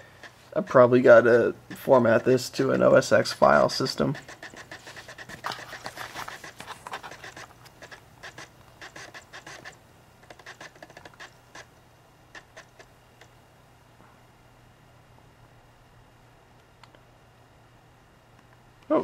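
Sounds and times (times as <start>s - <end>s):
cd drive clicking and scraping: 0.0s - 13.4s
faint steady hum: 0.0s - 19.0s.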